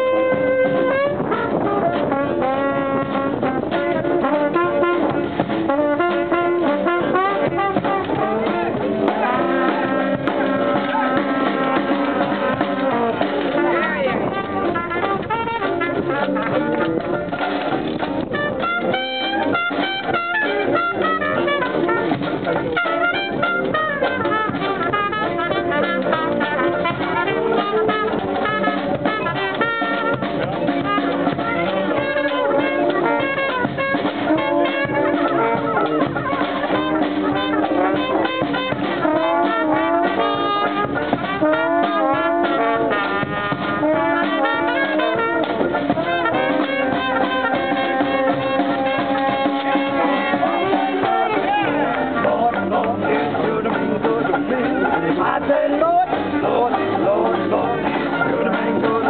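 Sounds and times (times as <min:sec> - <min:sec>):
banjo: 0:00.0 - 0:59.0
bass drum beat: 0:00.0 - 0:59.0
trumpet: 0:00.0 - 0:59.0
sousaphone: 0:18.2 - 0:59.0.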